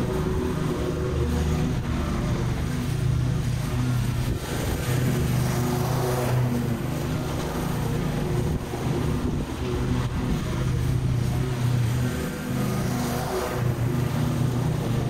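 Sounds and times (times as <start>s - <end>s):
mower engine cutting grass: 0.0s - 15.0s.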